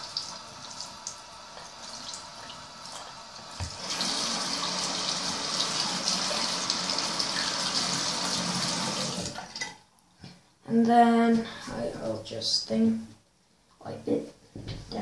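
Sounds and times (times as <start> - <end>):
sink tap running: 0.0 - 9.7.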